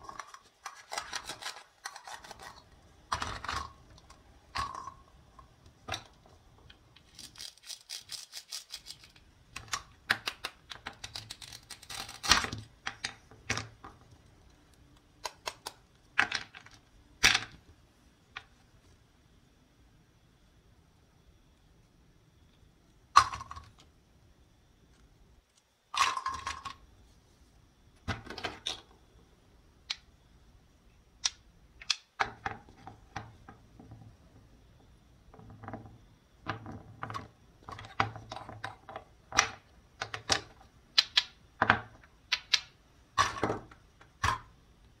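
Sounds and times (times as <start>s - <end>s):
plastic toy pieces clicking: 7.0s - 13.7s, 39.4s - 41.4s.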